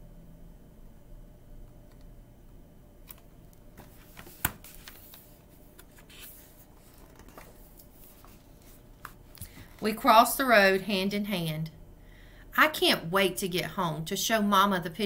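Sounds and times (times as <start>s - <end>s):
book pages turning: 3.1s - 9.8s.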